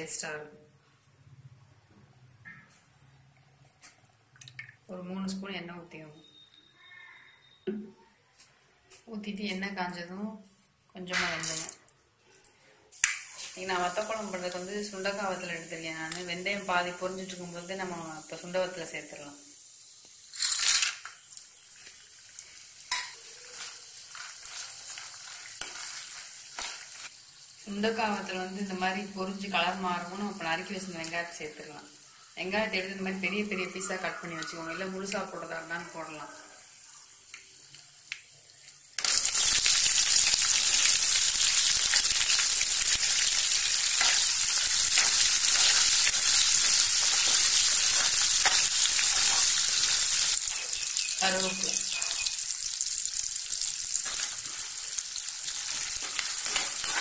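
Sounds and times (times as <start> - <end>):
frying with small crackles: 11.1 - 57.0
berries sizzling in hot oil: 13.0 - 57.0
spoon scraping pan: 22.9 - 27.1, 43.8 - 52.3, 55.6 - 57.0.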